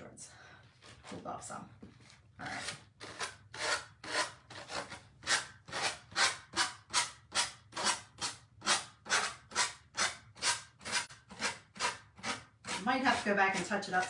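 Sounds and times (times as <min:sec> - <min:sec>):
sanding block rasping: 0:08.6 - 0:14.0.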